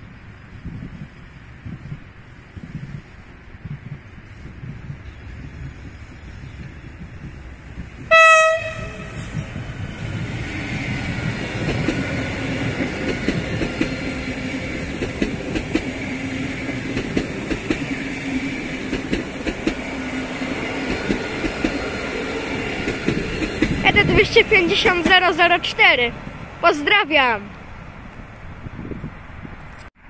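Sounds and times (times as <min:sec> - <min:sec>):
train wheels rumbling on rail: 0:00.0 - 0:29.8
train hum: 0:00.0 - 0:30.0
train horn blast: 0:08.1 - 0:09.5.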